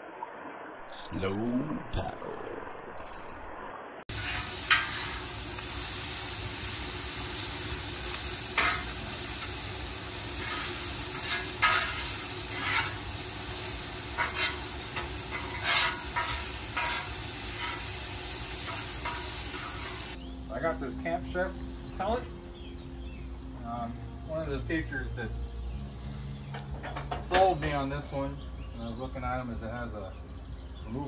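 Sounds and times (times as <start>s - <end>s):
meat sizzling on a griddle: 4.1s - 20.2s
metal tongs scraping a griddle: 4.1s - 20.2s.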